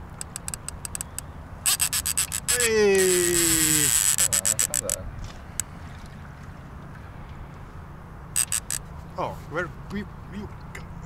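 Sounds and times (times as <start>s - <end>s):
fishing reel clicking and whirring: 0.1s - 5.0s, 8.4s - 8.8s.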